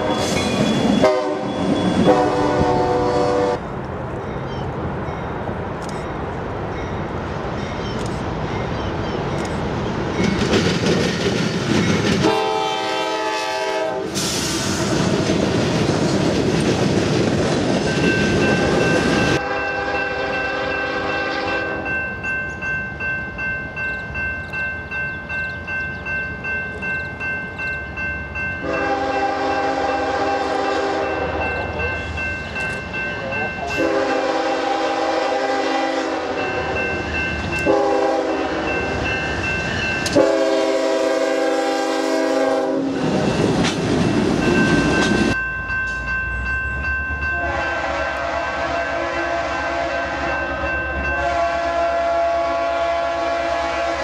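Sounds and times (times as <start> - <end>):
multi-chime locomotive horn: 0.0 - 3.6, 12.2 - 14.2, 18.1 - 24.3, 28.4 - 43.4, 44.4 - 54.0
train horn blasts: 0.0 - 3.6, 12.2 - 14.3, 18.6 - 22.0, 28.6 - 31.7, 33.7 - 36.9, 37.6 - 39.0, 40.1 - 43.1, 47.3 - 54.0
crossing bell ringing: 0.0 - 10.6, 17.8 - 41.0, 42.4 - 43.7, 44.4 - 52.8
coal train rumbling: 0.0 - 54.0.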